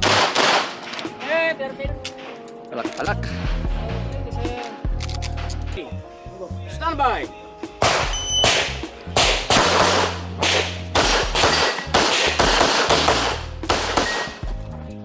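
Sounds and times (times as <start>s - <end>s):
pistol shots: 0.0s - 1.3s, 7.8s - 14.4s
background music: 0.0s - 15.0s.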